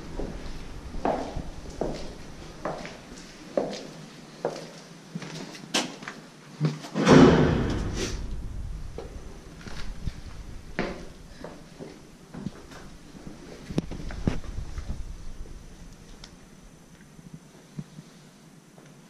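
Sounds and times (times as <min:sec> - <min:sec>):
footsteps on hard floor: 0:00.2 - 0:04.7
loud echoing thump: 0:07.0 - 0:11.3.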